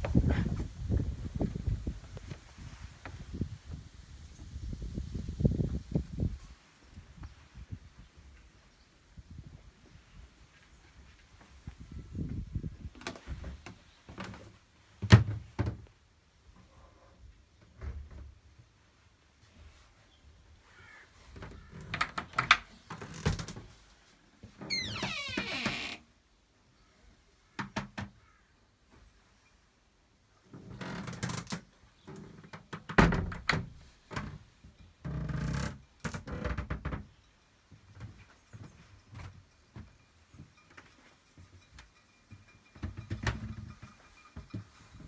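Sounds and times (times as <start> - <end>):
knocks and thuds in wooden cabin: 12.2 - 15.9, 17.6 - 18.6, 21.3 - 23.8, 24.4 - 26.0, 27.5 - 28.4, 32.4 - 40.8, 42.3 - 45.0.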